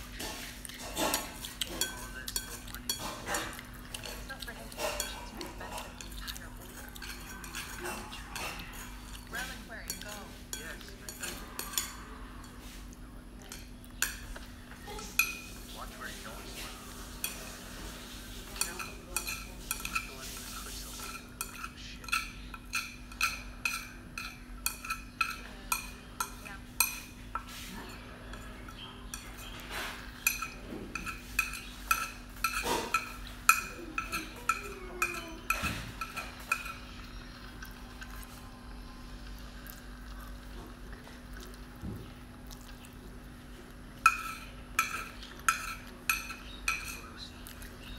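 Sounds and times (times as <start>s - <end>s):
chopsticks clinking against ceramic bowl: 0.7s - 12.7s, 13.4s - 14.6s, 18.5s - 38.4s, 44.0s - 47.9s.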